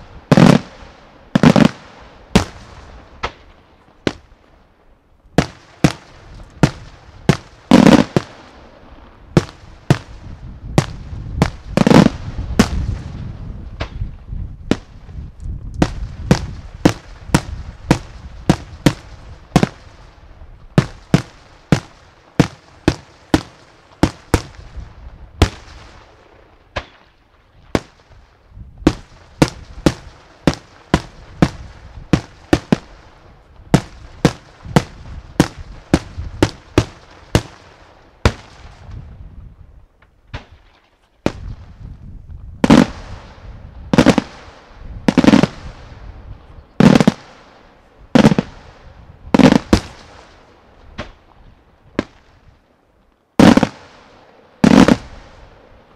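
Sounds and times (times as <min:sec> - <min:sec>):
heavy echoing fireworks bangs: 0:00.0 - 0:04.3, 0:05.4 - 0:14.0, 0:15.8 - 0:20.0, 0:20.7 - 0:27.0, 0:28.8 - 0:39.0, 0:42.6 - 0:51.2, 0:53.4 - 0:55.6
fireworks bursting: 0:00.0 - 0:04.5, 0:05.4 - 0:27.1, 0:27.7 - 0:39.2, 0:42.6 - 0:52.4, 0:53.4 - 0:55.9.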